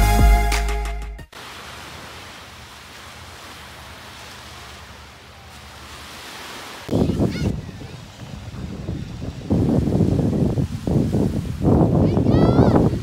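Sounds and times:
background music: 0:00.0 - 0:01.3.

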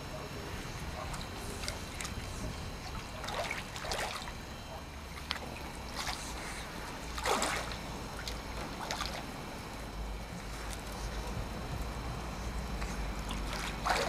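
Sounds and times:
wind rumble on microphone: 0:00.5 - 0:03.9
water splashing and lapping: 0:00.7 - 0:14.0.

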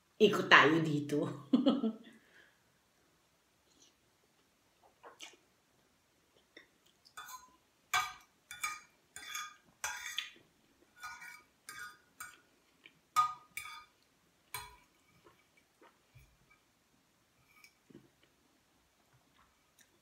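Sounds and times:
fork scraping on plate: 0:07.2 - 0:10.4, 0:11.0 - 0:12.4.

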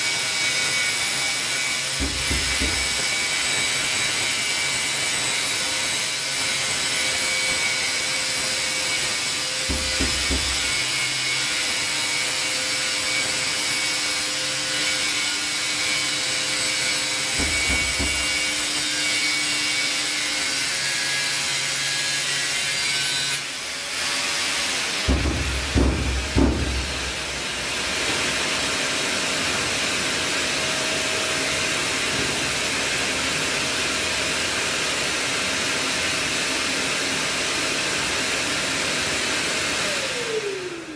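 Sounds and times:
angle grinder grinding tile: 0:00.3 - 0:13.8, 0:14.8 - 0:23.5
knocks of tile handling: 0:02.0 - 0:03.3, 0:09.7 - 0:10.9, 0:17.4 - 0:18.6, 0:25.1 - 0:27.4.

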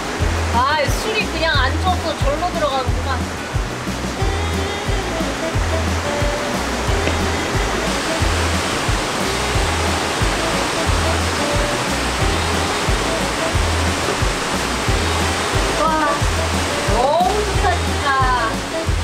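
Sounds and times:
rushing stream: 0:00.0 - 0:19.0
background music with bass beat: 0:01.3 - 0:19.0.

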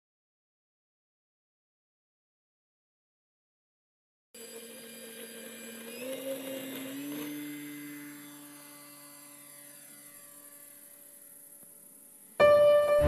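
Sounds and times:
model plane motor whining: 0:04.4 - 0:12.6.

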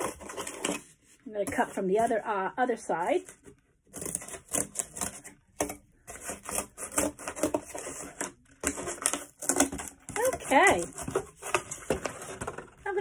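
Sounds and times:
scissors cutting cardboard: 0:00.0 - 0:00.9, 0:03.9 - 0:12.6.

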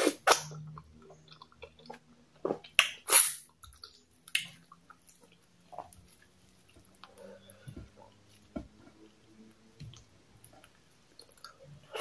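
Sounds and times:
person chewing food: 0:00.0 - 0:08.6.

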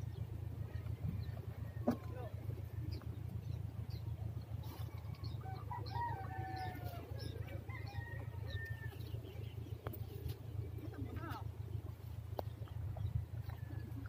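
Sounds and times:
steady low rumble: 0:00.0 - 0:14.0
rooster crowing: 0:05.4 - 0:09.1.

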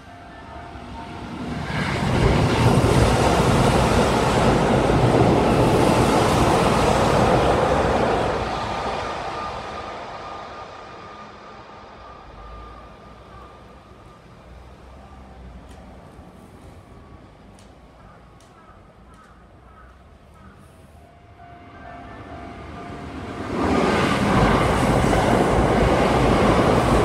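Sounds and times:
train wheels rumbling on rails: 0:00.9 - 0:11.5, 0:23.2 - 0:27.0.

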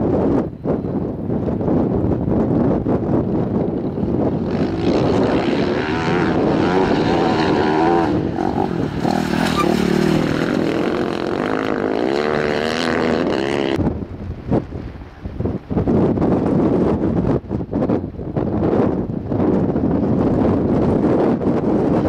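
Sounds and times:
racing engine revving: 0:04.4 - 0:13.8.

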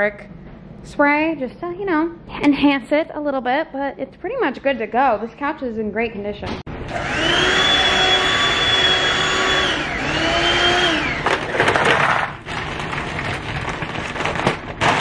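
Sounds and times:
handheld vacuum cleaner motor whine: 0:06.9 - 0:11.7
plastic bag crinkling: 0:11.6 - 0:15.0.

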